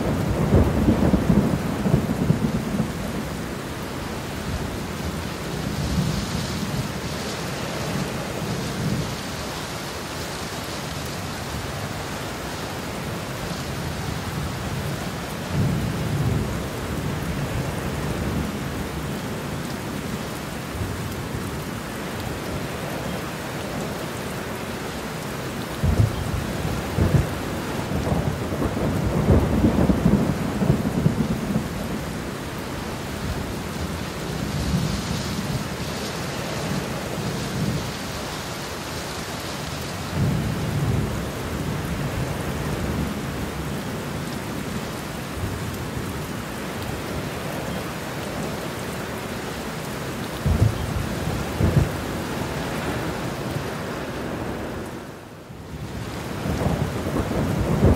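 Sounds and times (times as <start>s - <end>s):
thunder rumbling: 0.0s - 3.4s, 25.8s - 32.3s, 50.4s - 53.6s, 55.8s - 57.9s
steady rain: 0.0s - 57.9s.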